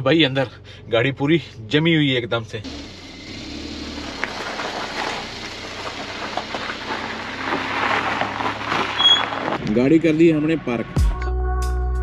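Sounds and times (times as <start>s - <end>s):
car engine running: 0.0s - 10.7s
tyres crackling on ice: 3.9s - 9.9s.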